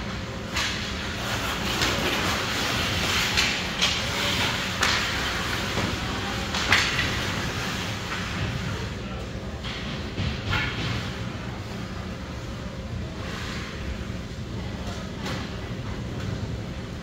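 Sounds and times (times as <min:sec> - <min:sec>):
hockey sticks and puck clacking: 0:00.5 - 0:08.6
skates scraping ice: 0:00.5 - 0:08.7.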